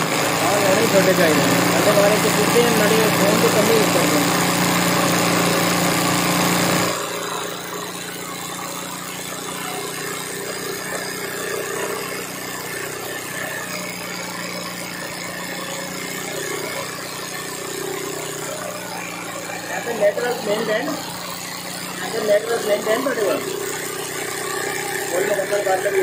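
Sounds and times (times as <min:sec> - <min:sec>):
sewing machine running: 0:00.0 - 0:26.0.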